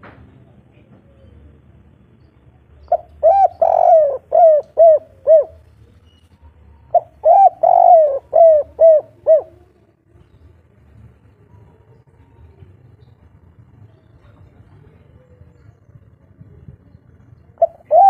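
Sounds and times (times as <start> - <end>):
dove cooing: 2.9 - 5.7, 6.8 - 9.8, 17.6 - 18.0.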